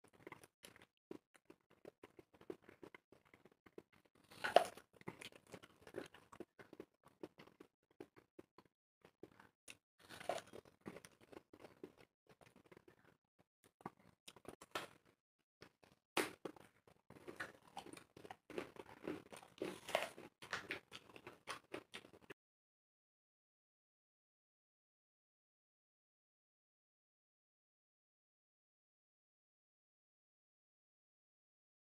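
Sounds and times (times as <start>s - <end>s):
people crunching apples: 0.1s - 22.3s.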